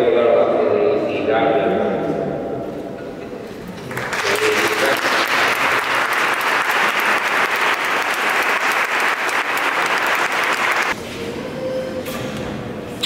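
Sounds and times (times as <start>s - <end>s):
crowd applauding: 3.7s - 11.0s.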